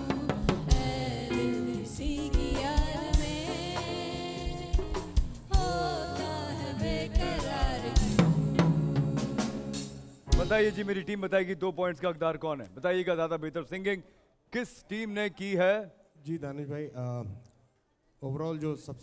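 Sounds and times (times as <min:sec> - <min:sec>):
snare and bass drum beat: 0:00.0 - 0:01.2, 0:02.1 - 0:11.0
singers singing: 0:00.0 - 0:10.0
live band playing: 0:00.0 - 0:11.2.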